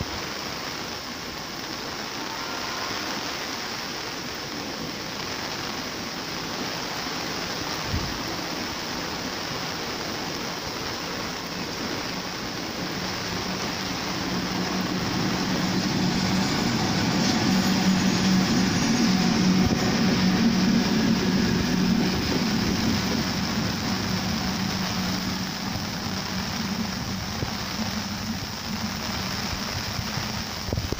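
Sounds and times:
heavy rain hissing: 0.0 - 30.9
train coaches rumbling past: 6.0 - 30.9
electric locomotive hum: 7.8 - 30.9.

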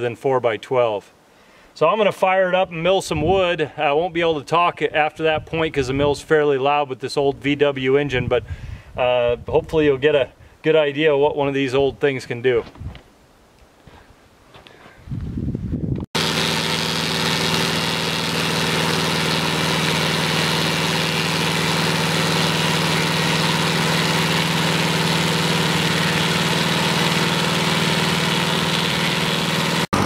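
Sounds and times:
engine running loudly: 16.2 - 30.0
saw blades whirring: 16.2 - 30.0.

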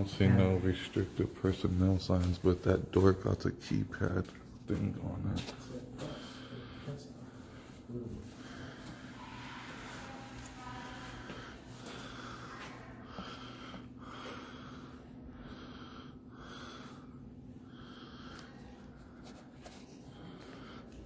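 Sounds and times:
steady low hum: 0.0 - 21.0
person breathing: 6.0 - 21.0.

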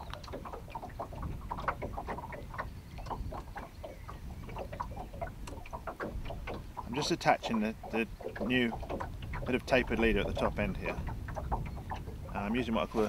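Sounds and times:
waves slapping against boat: 0.0 - 13.0
wind on microphone: 0.0 - 13.0.

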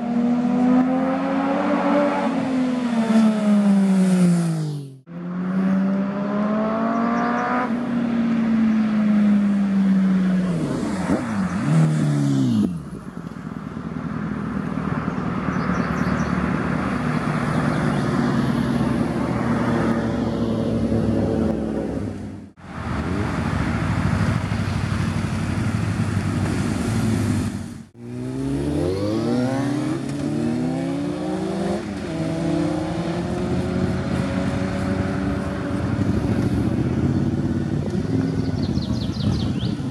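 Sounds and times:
motorcycles riding past: 0.0 - 39.9.

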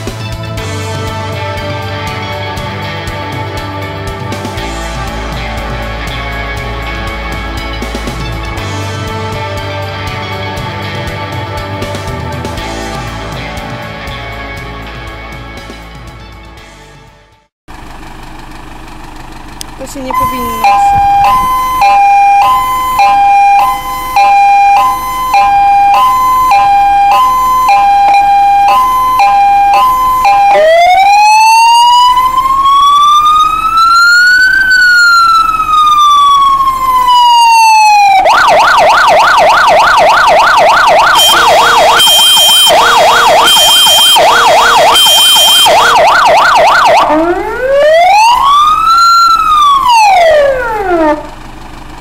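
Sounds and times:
diesel engine idling: 0.0 - 52.0
fire engine siren: 19.6 - 51.5
high beeping tone: 20.0 - 31.0, 38.3 - 47.6.

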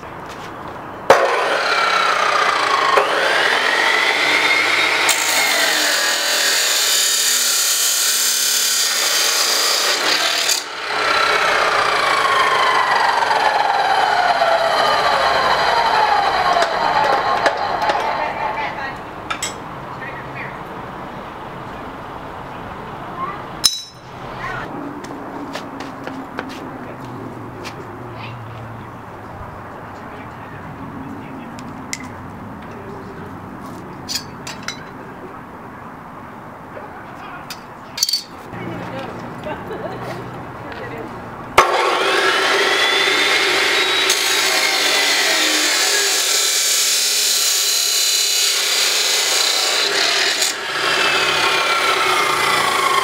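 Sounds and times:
saw motor whine spinning down: 1.2 - 6.4, 10.4 - 18.8, 41.6 - 48.7, 49.3 - 53.0.

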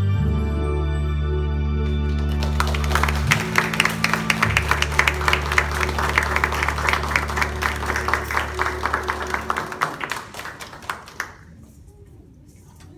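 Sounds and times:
held music chord: 0.0 - 10.2
audience applauding: 1.8 - 11.6.

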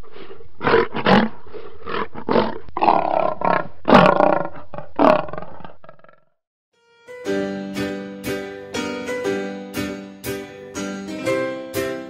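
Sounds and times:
lion roaring: 0.1 - 6.2.

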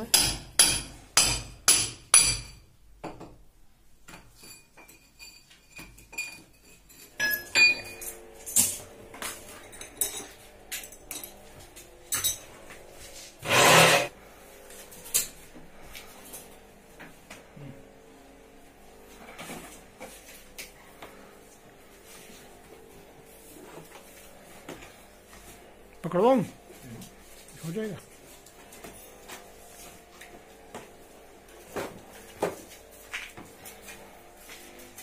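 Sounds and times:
tools and metal fittings clinking: 4.1 - 8.8, 9.5 - 11.4.

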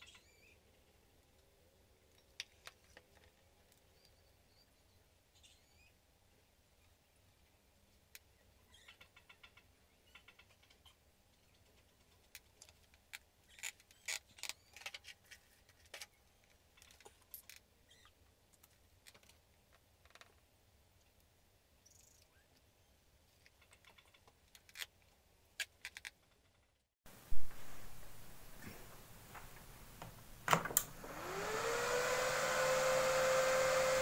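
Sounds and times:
low steady hum: 27.1 - 34.0.

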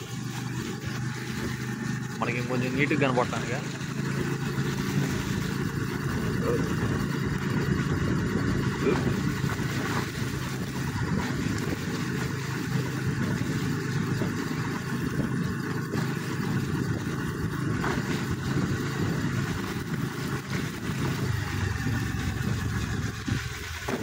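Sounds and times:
vehicle engine and road noise: 0.0 - 24.0.

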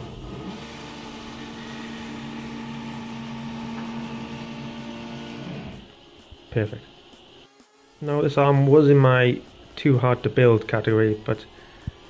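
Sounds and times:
stepper motor whine: 0.0 - 9.6.

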